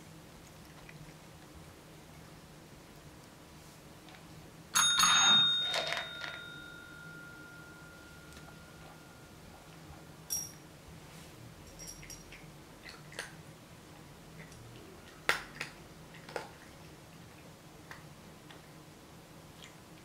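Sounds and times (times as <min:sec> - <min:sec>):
cat eating kibble: 0:00.0 - 0:04.4, 0:11.7 - 0:20.0
kibble clinking into ceramic bowl: 0:04.8 - 0:09.0, 0:11.7 - 0:12.4.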